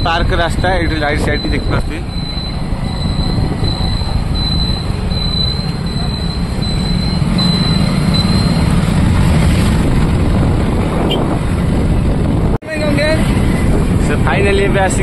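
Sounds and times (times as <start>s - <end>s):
wind buffeting microphone: 0.0s - 4.6s, 9.0s - 15.0s
motorbike engine and road noise: 0.0s - 15.0s.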